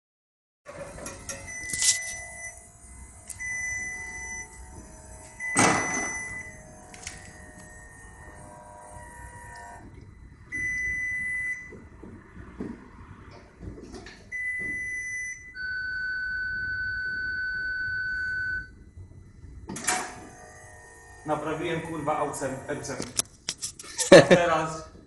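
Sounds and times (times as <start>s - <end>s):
car warning chime beeping: 1.3s - 8.4s, 9.2s - 11.8s, 14.3s - 19.6s.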